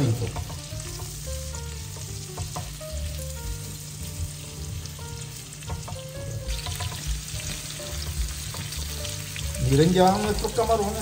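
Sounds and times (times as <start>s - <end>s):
shrimp sizzling in butter: 0.0s - 11.0s
spatula scraping and tapping pan: 0.2s - 2.9s, 5.7s - 9.0s.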